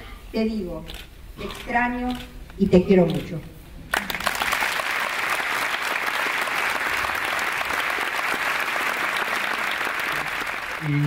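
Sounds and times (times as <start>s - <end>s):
large audience applauding: 3.9s - 11.0s.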